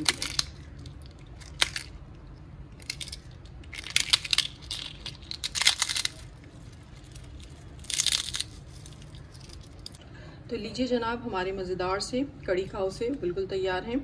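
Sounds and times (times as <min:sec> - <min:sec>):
fried wafers crunching by hand: 0:00.0 - 0:10.0.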